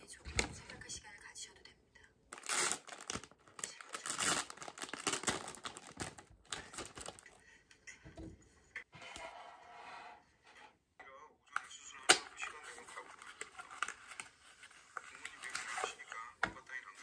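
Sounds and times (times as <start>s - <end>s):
plastic bag crinkling: 2.3s - 7.3s.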